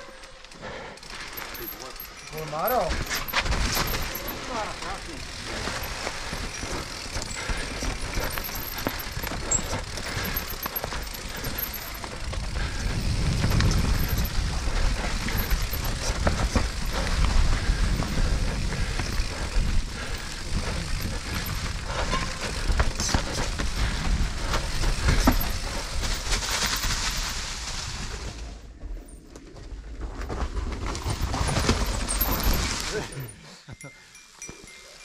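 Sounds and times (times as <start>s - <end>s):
chain and suspension rattling: 0.0s - 27.5s, 28.7s - 35.0s
bike tyres rumbling on dirt: 0.1s - 33.2s
wind rushing on microphone: 12.3s - 26.3s.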